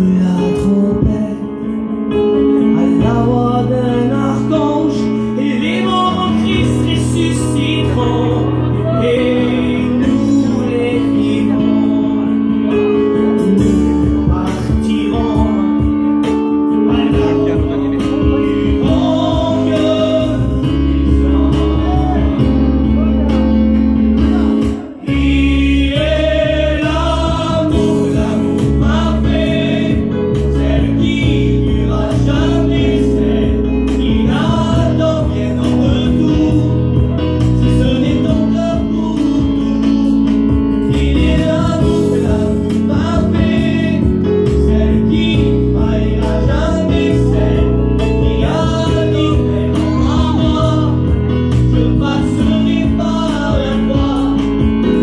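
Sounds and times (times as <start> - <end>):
man singing a hymn into microphone: 0.0 - 1.7, 2.7 - 22.5, 24.4 - 40.1, 40.8 - 55.0
instrumental accompaniment: 0.0 - 55.0
voices singing along: 16.9 - 23.1, 24.3 - 39.6, 40.8 - 55.0.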